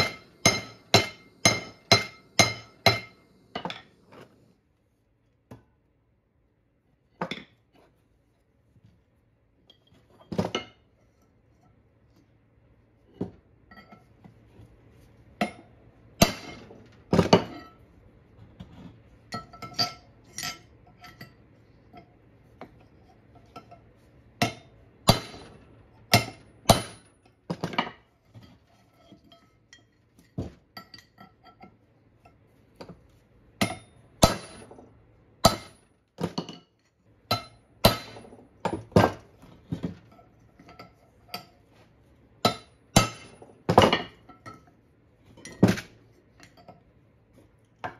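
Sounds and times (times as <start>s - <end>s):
hammer striking chisel on metal: 0.0s - 3.9s, 15.4s - 17.8s, 24.4s - 27.1s, 33.6s - 36.5s, 37.3s - 39.2s, 42.4s - 44.7s.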